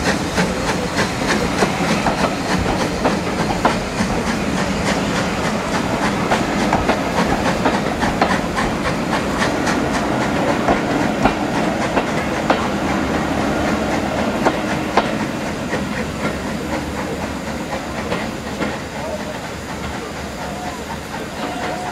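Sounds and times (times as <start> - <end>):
train coaches rumbling past: 0.0 - 21.9
wheels clacking over rail joints: 0.0 - 21.9.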